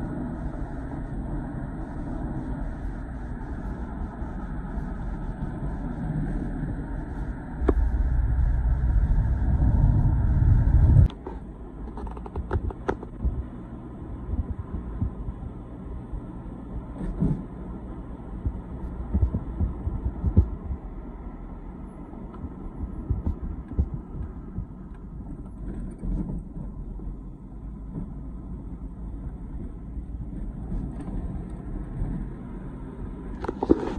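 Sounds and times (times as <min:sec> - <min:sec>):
car road and engine rumble: 0:00.0 - 0:33.9
low thumps: 0:12.2 - 0:15.6, 0:18.4 - 0:20.9, 0:22.4 - 0:25.4.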